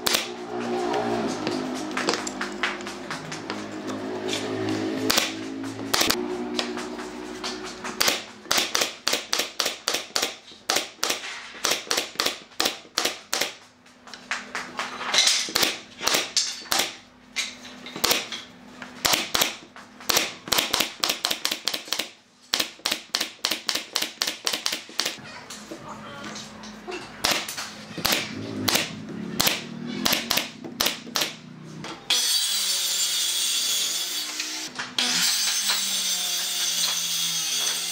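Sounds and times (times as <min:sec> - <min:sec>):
nail gun firing: 0:00.0 - 0:00.3, 0:05.1 - 0:06.2, 0:08.0 - 0:13.6, 0:15.5 - 0:17.0, 0:18.0 - 0:18.3, 0:19.0 - 0:25.2, 0:27.2 - 0:31.4.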